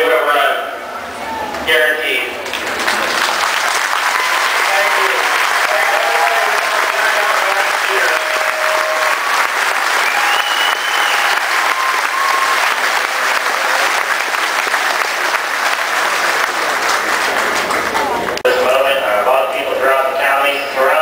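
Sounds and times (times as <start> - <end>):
crowd applauding: 2.4 - 18.5
short calls from crowd: 3.8 - 15.2.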